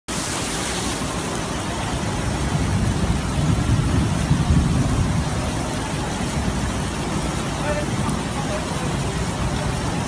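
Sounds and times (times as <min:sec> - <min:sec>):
heavy rain hiss: 0:00.1 - 0:10.0
rushing floodwater: 0:00.1 - 0:10.0.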